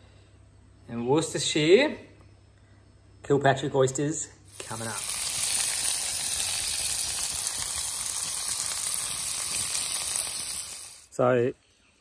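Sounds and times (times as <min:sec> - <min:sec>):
oysters sizzling: 0:04.5 - 0:11.2.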